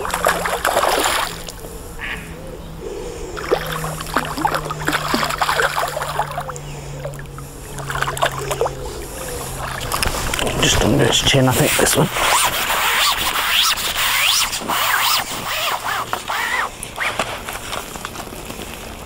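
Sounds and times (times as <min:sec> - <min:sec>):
fish splashing in water: 0:00.0 - 0:01.6, 0:03.4 - 0:11.0
steady low hum: 0:00.0 - 0:19.0.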